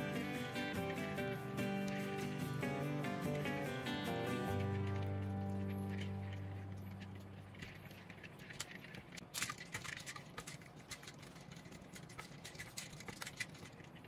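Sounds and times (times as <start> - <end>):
background music: 0.0 - 7.6.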